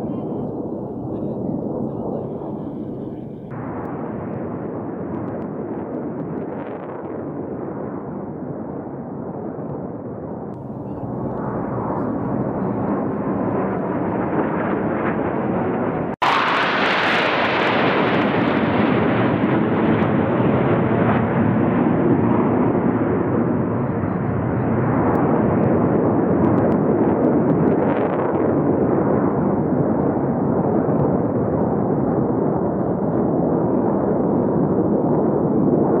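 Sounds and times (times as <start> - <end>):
jet aircraft flying past: 10.8 - 27.2.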